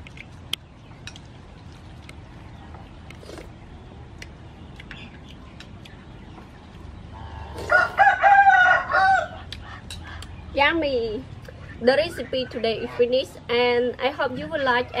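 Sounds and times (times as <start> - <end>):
rooster crowing: 7.3 - 9.5.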